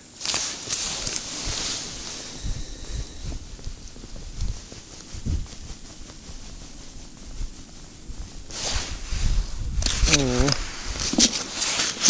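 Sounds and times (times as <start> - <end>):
clothing rustling: 0.0 - 12.0
brief rushing hiss: 0.2 - 7.6, 8.2 - 12.0
low thumps on body microphone: 2.4 - 9.9.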